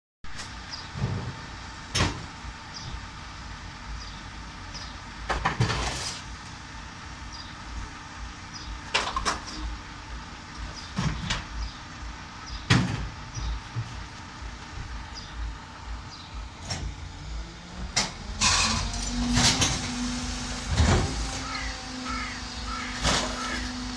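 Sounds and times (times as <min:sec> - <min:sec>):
garbage truck idling: 0:06.4 - 0:23.9.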